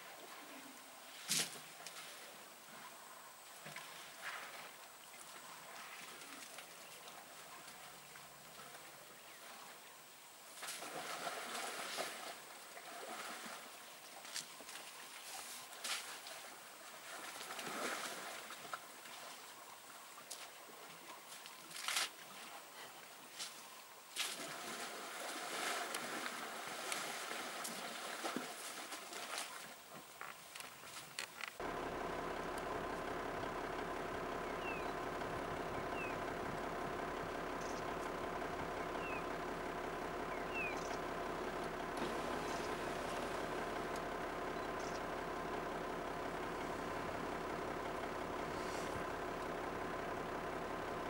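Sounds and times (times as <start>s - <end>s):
elephants splashing in mud and water: 10.5s - 19.5s, 24.2s - 29.9s
mud and water splashing: 10.5s - 19.6s, 24.2s - 30.0s, 30.6s - 51.0s.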